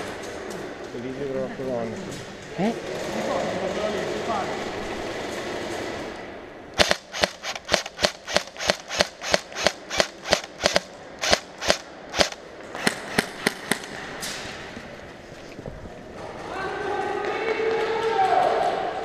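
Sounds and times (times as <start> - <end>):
airsoft rifle shots: 6.8 - 14.3.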